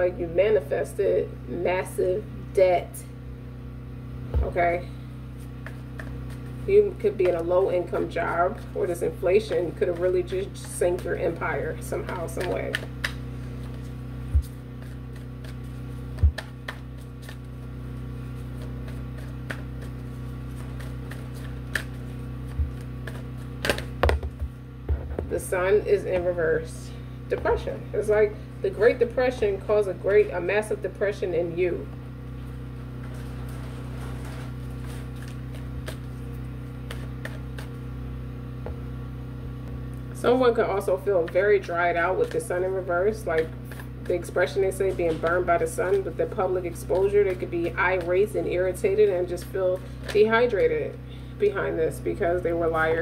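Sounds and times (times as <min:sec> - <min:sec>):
low hum: 0:00.0 - 0:53.0
dull low thumps: 0:16.0 - 0:16.7, 0:23.6 - 0:25.5.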